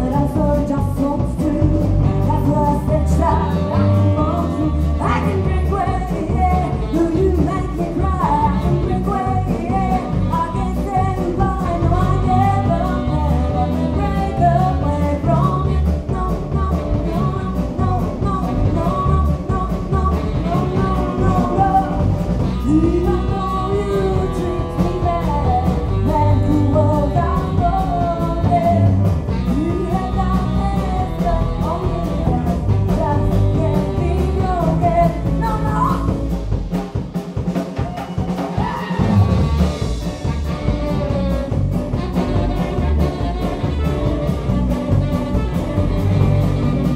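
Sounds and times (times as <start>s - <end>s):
saxophone: 0.0s - 36.4s, 37.9s - 46.9s
woman singing: 0.0s - 36.4s
drum kit beat: 0.0s - 46.9s.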